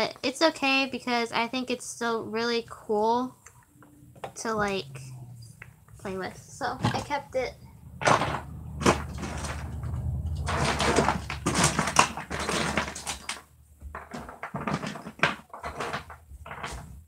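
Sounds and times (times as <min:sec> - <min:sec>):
low hum: 0:03.6 - 0:12.0
plastic toys clattering: 0:05.9 - 0:17.0.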